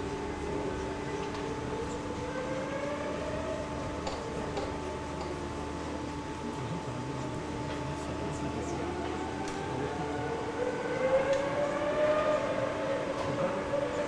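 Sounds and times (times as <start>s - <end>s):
steady hum: 0.0s - 14.0s
racing car engine accelerating: 6.7s - 14.0s.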